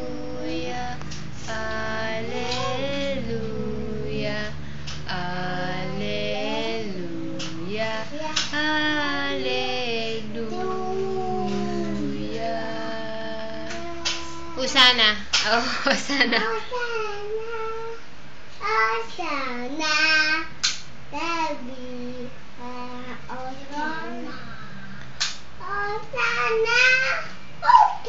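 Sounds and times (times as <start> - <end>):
toddler singing: 0.0 - 4.5, 5.1 - 14.6, 16.4 - 18.0, 18.6 - 20.5, 21.1 - 24.5, 25.6 - 28.0
song with female voice: 0.0 - 14.6.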